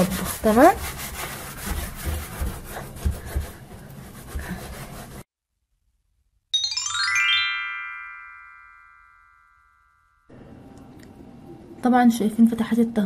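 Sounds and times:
sponge scrubbing wet cabinet door: 0.0 - 5.2
falling run of chime notes: 6.6 - 10.3.

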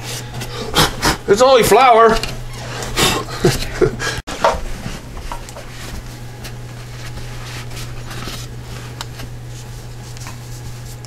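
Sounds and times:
steady low hum: 0.0 - 11.0
towel rubbing swishes: 4.3 - 11.0.

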